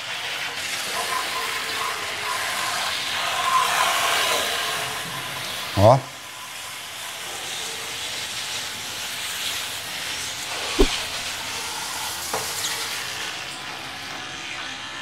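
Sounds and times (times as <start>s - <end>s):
brief knock: 10.8s - 11.2s.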